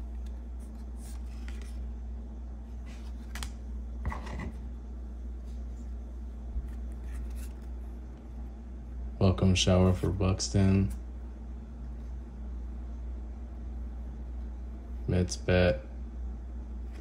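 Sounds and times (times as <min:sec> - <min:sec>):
cards flipping and sliding: 0:00.0 - 0:01.9, 0:02.8 - 0:04.3, 0:06.6 - 0:07.9
steady low hum: 0:00.0 - 0:17.0.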